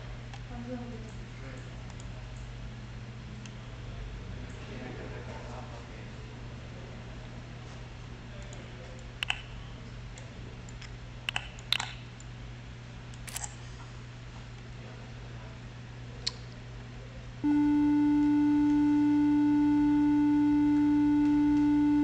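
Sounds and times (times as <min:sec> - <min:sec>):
steady electronic tone: 0:17.4 - 0:22.0.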